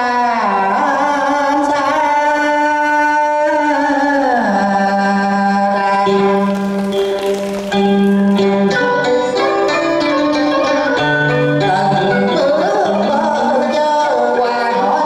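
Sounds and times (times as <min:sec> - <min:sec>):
instrumental accompaniment: 0:05.8 - 0:13.6.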